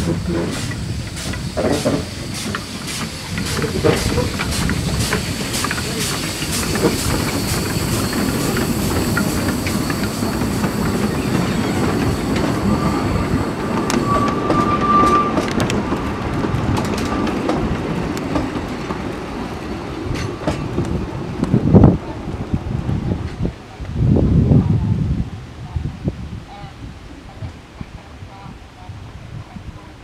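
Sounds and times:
train wheels clicking over rail joints: 0.0 - 21.8
wheel squeal: 1.6 - 16.0.

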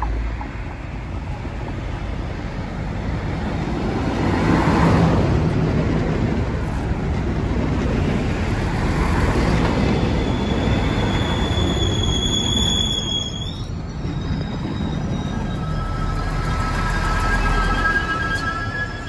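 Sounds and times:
train wheels rumbling: 0.0 - 19.0
high wheel squeal: 8.7 - 19.0.

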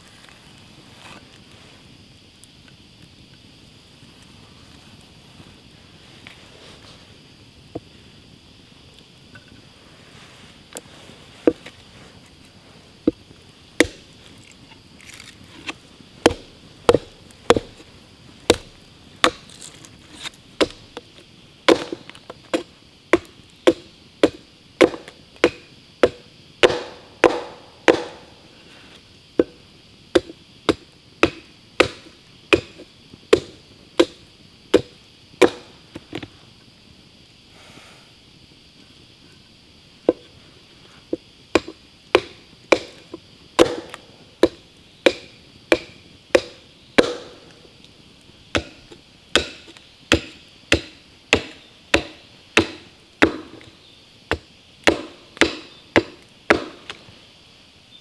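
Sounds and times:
chopping knocks on wood: 23.2 - 28.3, 41.6 - 43.0, 43.6 - 47.3, 48.6 - 48.8, 49.4 - 53.6, 54.3 - 57.0.

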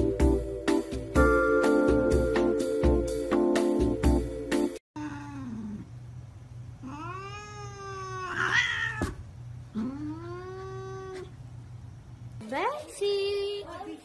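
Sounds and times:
cat harsh outburst: 6.8 - 9.2
cat yowling: 6.8 - 9.2, 9.8 - 11.4.

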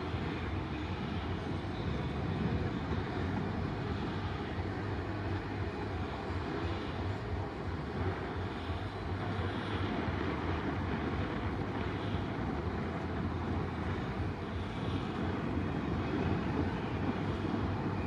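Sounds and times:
constant low hum: 0.0 - 18.0
outdoor background rumble: 0.0 - 18.0.

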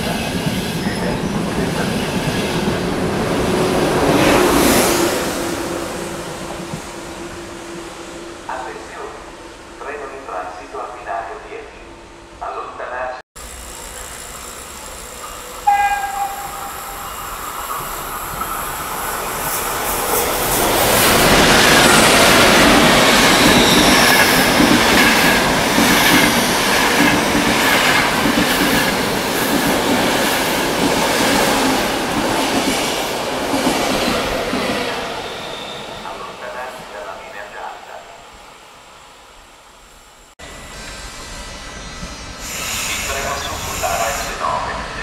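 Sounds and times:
high-speed train passing: 0.0 - 45.0
train horn: 15.6 - 17.2.

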